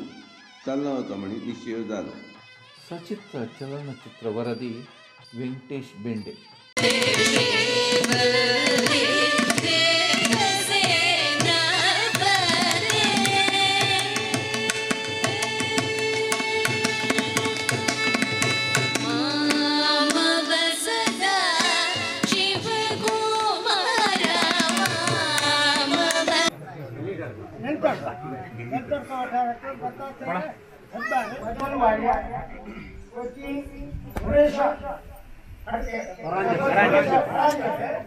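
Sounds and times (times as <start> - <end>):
held accompanying tones: 2.5 - 26.5.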